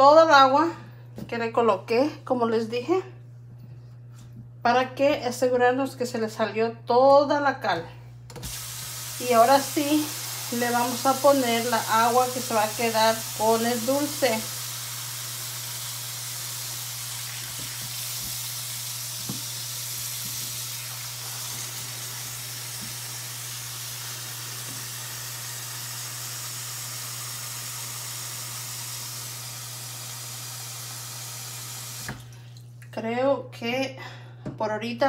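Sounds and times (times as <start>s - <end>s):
faucet running into metal pan: 8.4s - 32.4s.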